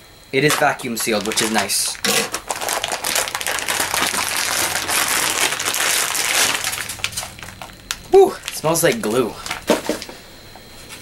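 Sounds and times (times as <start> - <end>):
plastic packaging crinkling: 0.4 - 10.2.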